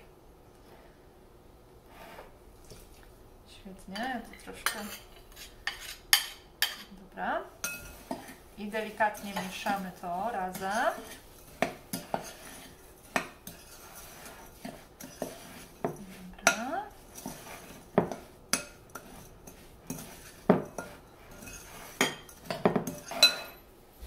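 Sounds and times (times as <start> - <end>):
spoon scraping glass bowl: 4.0 - 7.0, 7.6 - 23.6.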